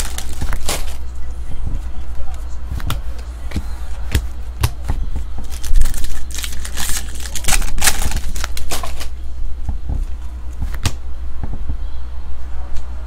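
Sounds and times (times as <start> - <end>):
foil pack crinkling and tearing: 0.0 - 1.0, 5.4 - 9.2.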